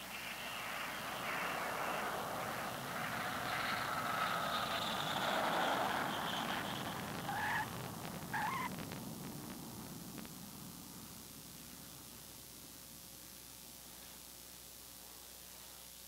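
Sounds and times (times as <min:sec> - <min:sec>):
rushing noise: 0:00.0 - 0:11.1
jet engines whining: 0:00.0 - 0:11.2
tyres chirping on touchdown: 0:00.0 - 0:11.2.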